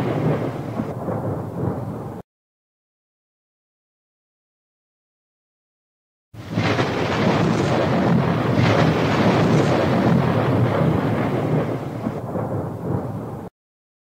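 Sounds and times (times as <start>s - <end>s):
ocean waves breaking: 6.4s - 12.1s.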